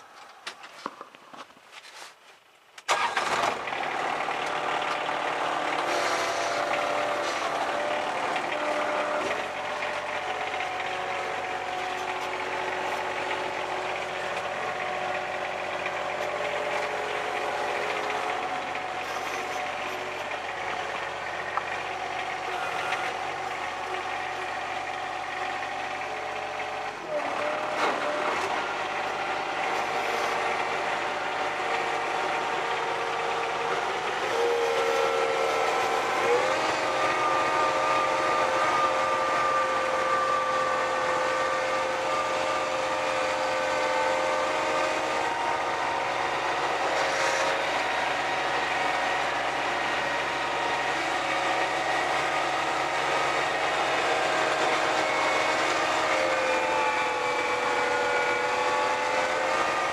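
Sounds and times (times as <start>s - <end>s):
snowblower mechanical whine: 2.9s - 59.9s.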